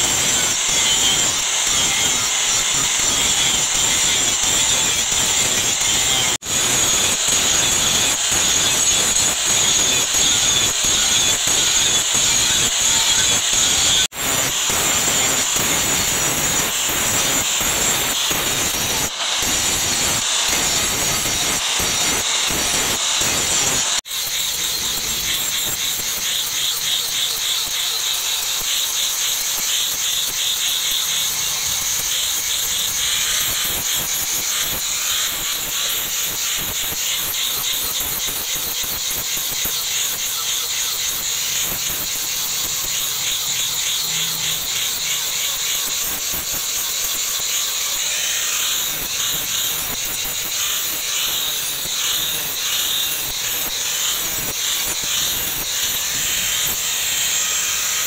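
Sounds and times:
angle grinder grinding steel: 0.0 - 58.0.

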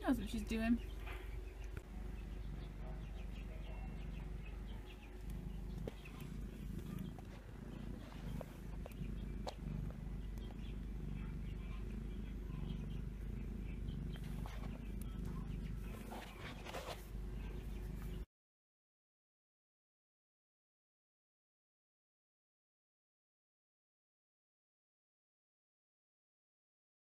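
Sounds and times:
cat purring: 0.0 - 18.3.

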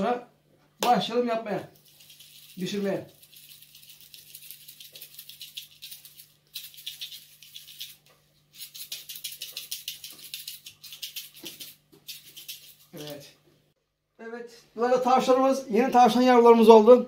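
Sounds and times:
seasoning shaker rattling: 1.6 - 13.3.

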